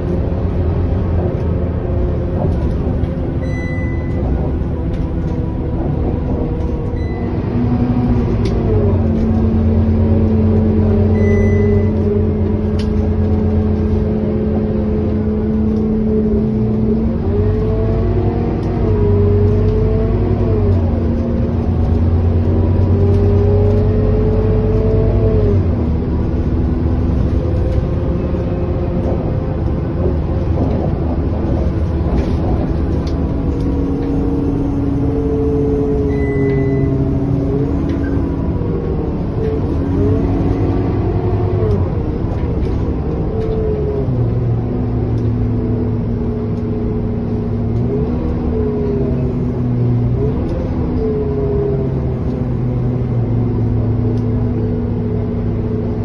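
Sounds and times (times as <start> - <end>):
bus drivetrain hum: 0.0 - 56.0
pitched whine: 2.4 - 17.9, 31.4 - 44.2.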